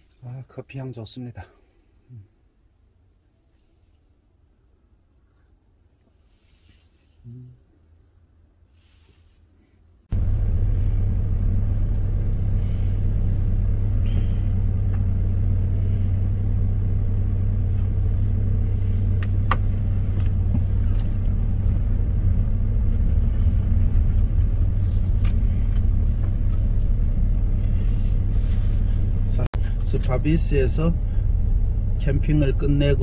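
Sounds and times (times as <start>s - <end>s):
steady low rumble: 9.8s - 33.0s.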